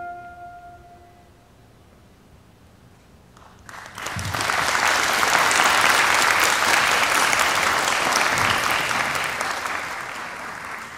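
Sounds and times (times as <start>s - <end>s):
audience applauding: 3.4s - 10.9s.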